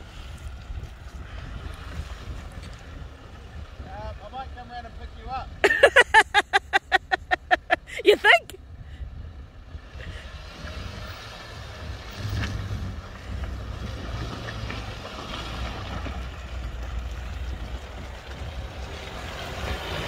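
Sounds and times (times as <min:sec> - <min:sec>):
wind noise on microphone: 0:00.0 - 0:04.2, 0:08.5 - 0:14.9
pickup engine rumbling: 0:00.0 - 0:20.0.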